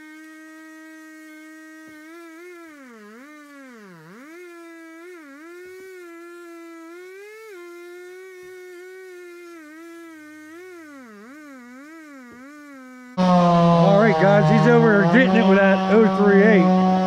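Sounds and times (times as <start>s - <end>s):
chainsaw cutting log: 0.0s - 17.0s.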